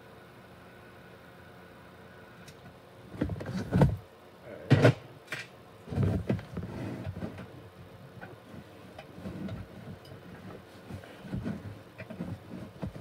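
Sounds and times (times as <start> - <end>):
knocks and bumps on plastic: 3.2 - 4.0, 5.9 - 7.5, 9.3 - 13.0.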